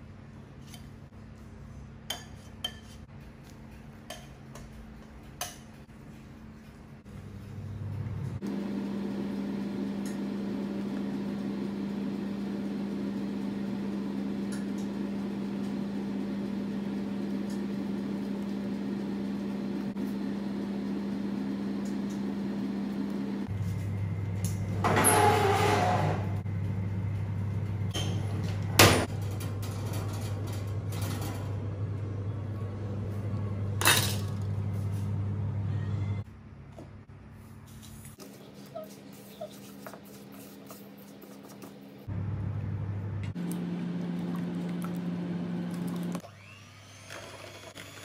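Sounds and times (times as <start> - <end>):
pan scraping on wire rack: 24.8 - 26.4
steady low hum: 26.2 - 37.1.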